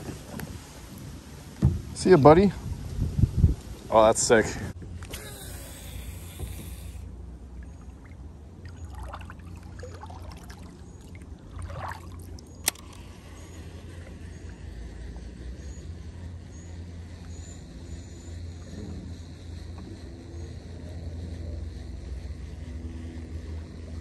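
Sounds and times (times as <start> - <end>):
low wind rumble: 0.0 - 24.0
water trickling and splashing: 7.5 - 12.8
sharp click: 12.6 - 13.1.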